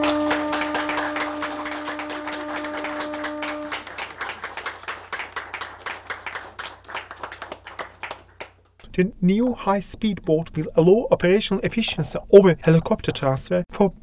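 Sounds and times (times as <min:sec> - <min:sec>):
horn blast: 0:00.0 - 0:04.2
crowd applauding: 0:00.0 - 0:08.9.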